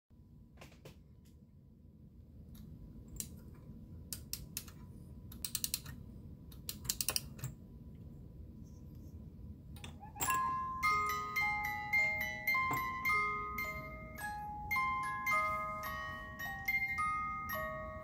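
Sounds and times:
music box ratchet clicks: 0:05.4 - 0:06.0, 0:06.6 - 0:07.4
music box tune: 0:10.2 - 0:18.0.

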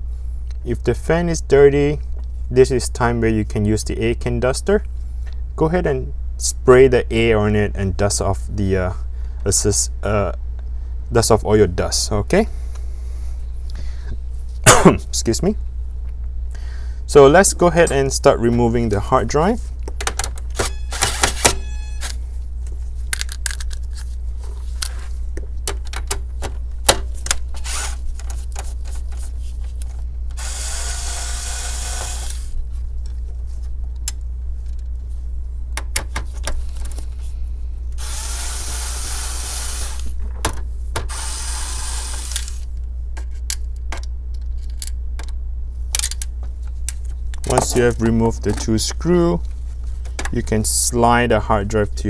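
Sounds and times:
electric screwdriver whirring: 0:20.6 - 0:22.2, 0:27.6 - 0:28.0, 0:30.4 - 0:32.6, 0:38.0 - 0:40.1, 0:41.1 - 0:42.6.

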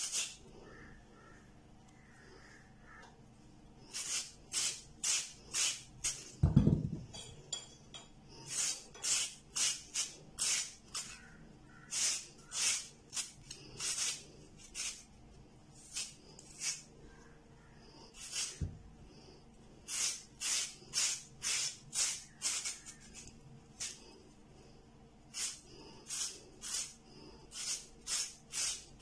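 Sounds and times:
potato grating rasps: 0:00.0 - 0:01.0, 0:03.9 - 0:06.4, 0:08.4 - 0:15.1, 0:15.8 - 0:16.9, 0:18.1 - 0:18.7, 0:19.8 - 0:24.2, 0:25.3 - 0:29.0.

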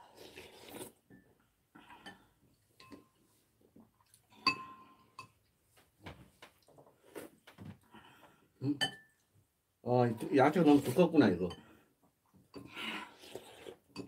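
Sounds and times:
spoons clinking against bowls: 0:04.4 - 0:05.4, 0:08.7 - 0:09.1.

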